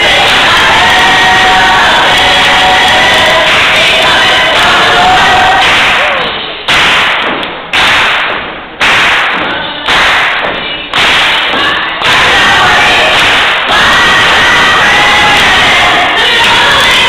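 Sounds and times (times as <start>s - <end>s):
gospel choir singing: 0.0s - 6.4s, 10.6s - 17.0s
loud thuds: 5.6s - 14.1s.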